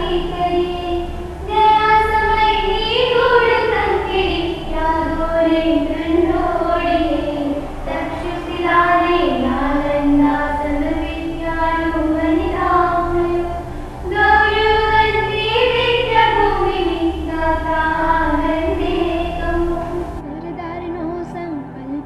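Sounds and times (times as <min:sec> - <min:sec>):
instrumental backing: 0:00.0 - 0:22.0
woman singing: 0:00.0 - 0:22.0.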